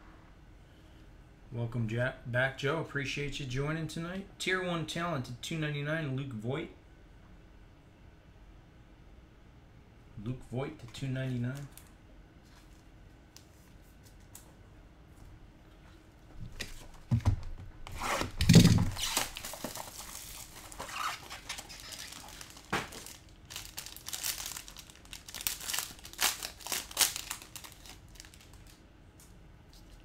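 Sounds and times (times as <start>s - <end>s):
plastic wrapper crinkling and tearing: 18.2s - 28.8s.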